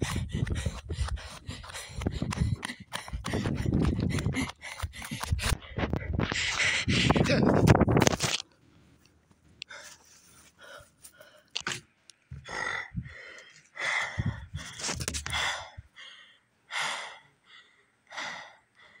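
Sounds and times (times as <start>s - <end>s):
person breathing hard and gasping: 0.0s - 7.6s, 12.3s - 19.0s.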